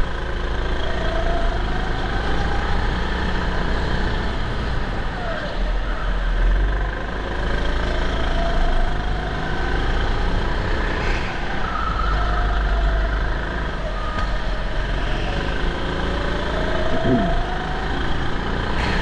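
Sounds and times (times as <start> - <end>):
go-kart engine running: 0.0 - 11.6, 12.5 - 19.0.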